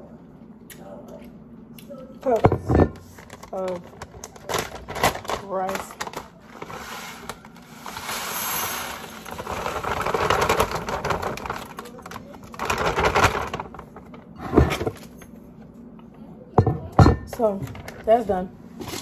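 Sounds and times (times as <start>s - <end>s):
plastic bag crinkling: 3.1s - 14.3s.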